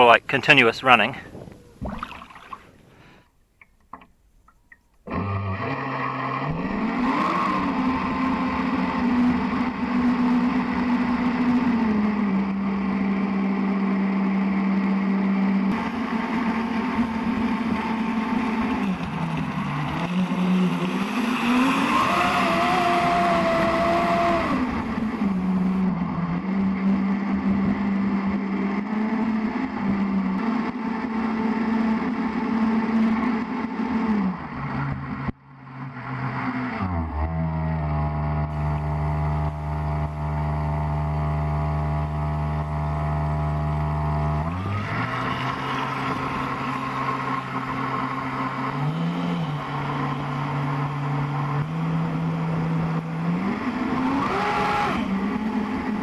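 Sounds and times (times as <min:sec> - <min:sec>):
electric motor whining: 0:16.8 - 0:25.9.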